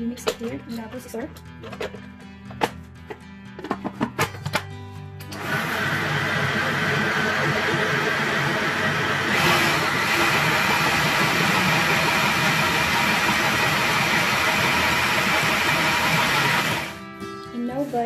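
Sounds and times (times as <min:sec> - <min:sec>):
food processor motor running: 0:05.3 - 0:17.0.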